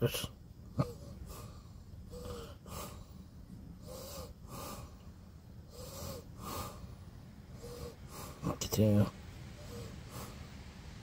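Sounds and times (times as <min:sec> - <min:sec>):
person breathing softly: 0:00.8 - 0:08.5, 0:09.5 - 0:10.6.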